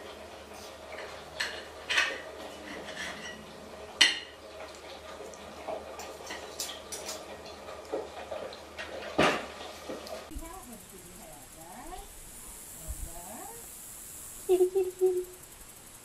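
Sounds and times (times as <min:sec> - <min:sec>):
low steady hum: 0:10.3 - 0:16.0.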